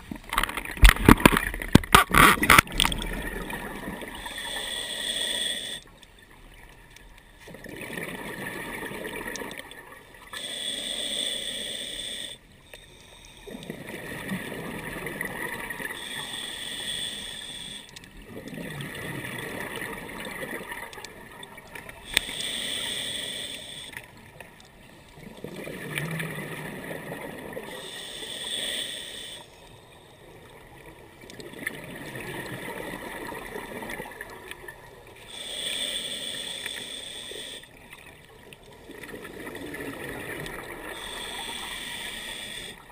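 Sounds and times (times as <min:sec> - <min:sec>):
rush of exhaled bubbles: 0:00.7 - 0:04.3, 0:07.5 - 0:09.6, 0:38.9 - 0:41.2
regulator inhale hiss: 0:04.1 - 0:06.0, 0:10.3 - 0:13.6, 0:15.9 - 0:18.0, 0:22.0 - 0:24.2, 0:27.7 - 0:30.2, 0:35.2 - 0:37.8, 0:40.9 - 0:42.9.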